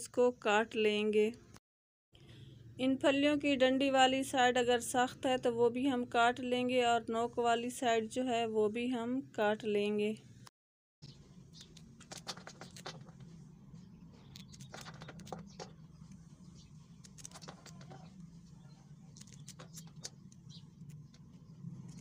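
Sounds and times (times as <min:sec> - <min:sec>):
low steady hum: 0:02.2 - 0:22.0
knife cutting crisp pods: 0:14.2 - 0:16.2, 0:16.9 - 0:21.2.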